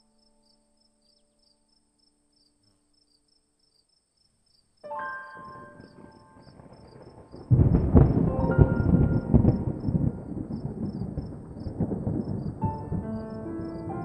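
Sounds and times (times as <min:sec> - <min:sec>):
soft background music: 0:00.0 - 0:04.0, 0:04.8 - 0:11.2, 0:11.8 - 0:14.0
insects chirping: 0:00.0 - 0:14.0
loud rumbling crackling noise: 0:05.4 - 0:14.0.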